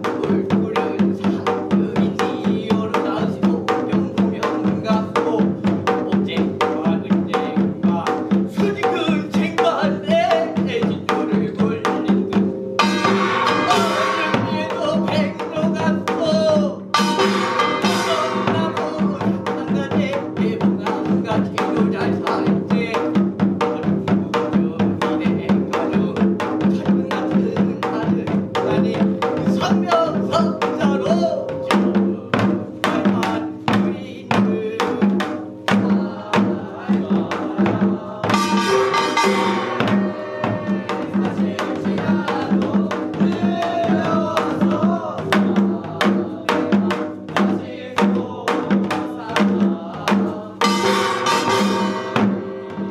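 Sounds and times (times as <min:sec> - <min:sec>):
fast drum rhythm: 0:00.0 - 0:52.9
person chanting: 0:06.0 - 0:47.0.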